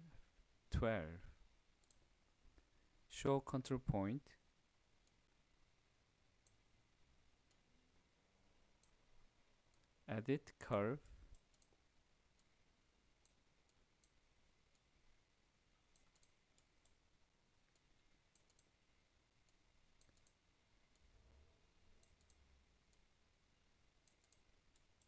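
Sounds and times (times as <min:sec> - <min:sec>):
faint computer mouse clicks: 0:11.3 - 0:11.8, 0:15.9 - 0:17.0, 0:17.7 - 0:18.7, 0:19.4 - 0:21.1, 0:22.0 - 0:23.0, 0:24.0 - 0:25.0.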